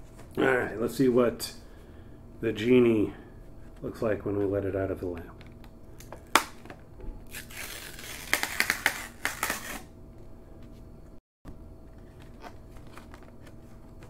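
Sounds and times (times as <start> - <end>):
paper mailer tearing open: 7.3 - 9.9
paper rustling: 12.0 - 14.0.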